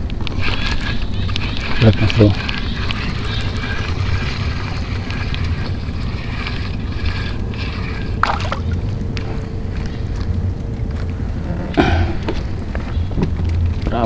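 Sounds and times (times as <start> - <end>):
fishing reel being cranked: 0.2 - 8.8.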